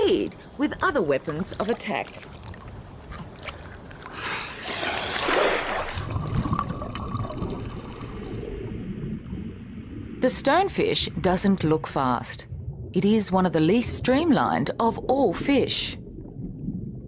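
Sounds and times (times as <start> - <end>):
muffled underwater water noise: 0.0 - 17.0
water splashing and rushing: 1.0 - 14.3.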